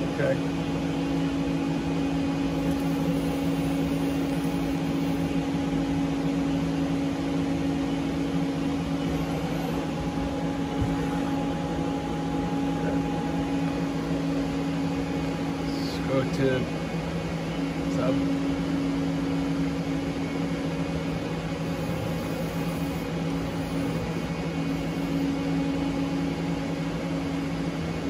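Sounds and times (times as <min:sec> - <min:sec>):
lathe humming at idle: 0:00.0 - 0:28.0.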